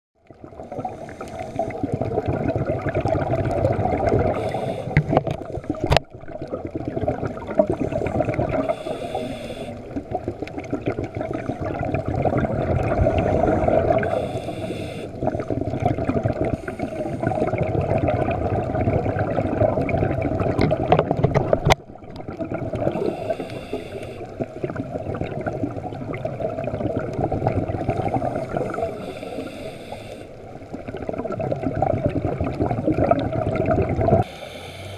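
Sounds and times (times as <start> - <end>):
rumble of water: 0.2 - 34.9
burst of bubbles: 0.4 - 9.1, 9.8 - 14.2, 15.2 - 23.4, 24.3 - 29.1, 30.7 - 34.3
regulator breathing hiss: 0.8 - 1.8, 4.3 - 5.8, 8.6 - 9.9, 13.2 - 15.2, 16.5 - 17.4, 23.0 - 24.4, 28.6 - 30.4, 34.2 - 34.9.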